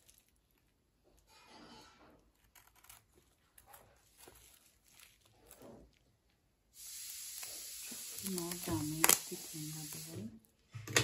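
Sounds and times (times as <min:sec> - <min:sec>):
knife scratching plastic wrap: 0:01.3 - 0:06.0
steady hiss: 0:06.7 - 0:10.5.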